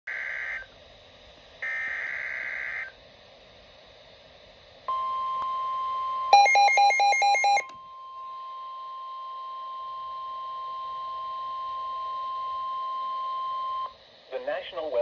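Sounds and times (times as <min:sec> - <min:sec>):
steady warning alarm tone: 0:00.1 - 0:00.7, 0:01.6 - 0:02.9, 0:04.9 - 0:14.0
rapid loud alert beeps: 0:06.3 - 0:07.7.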